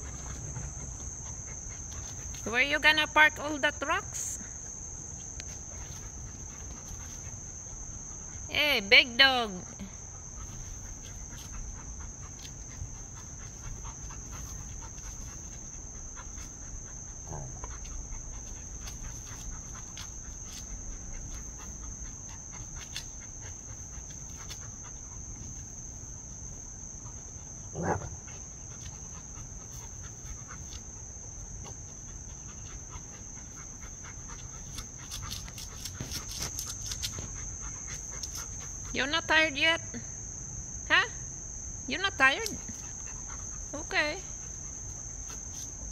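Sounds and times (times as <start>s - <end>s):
crickets chirring: 0.0s - 45.9s
dog grunt: 17.2s - 17.8s, 27.7s - 28.2s.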